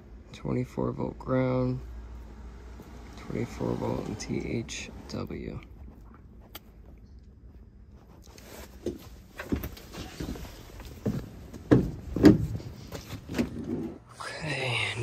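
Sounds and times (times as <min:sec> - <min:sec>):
dull knocks and thumps: 0:08.8 - 0:13.9.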